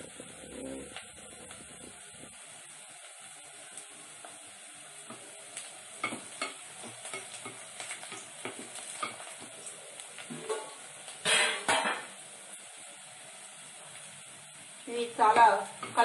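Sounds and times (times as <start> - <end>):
onions sizzling in oil: 0.0 - 16.0.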